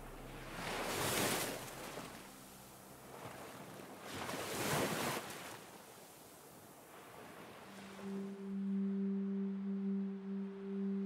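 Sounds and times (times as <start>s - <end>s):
ocean wave washing in: 0.0s - 8.6s.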